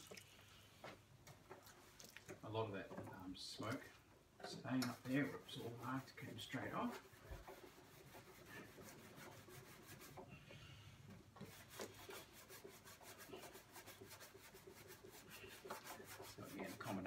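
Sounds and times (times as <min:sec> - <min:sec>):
scourer scrubbing a lid: 0:04.8 - 0:10.2, 0:11.4 - 0:17.0.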